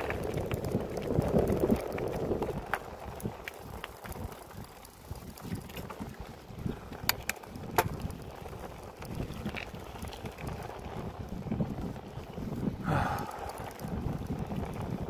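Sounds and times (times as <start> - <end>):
bike tyres crunching on gravel: 0.0 - 15.0
wind buffeting microphone: 0.0 - 15.0
bike frame rattle: 6.8 - 10.9.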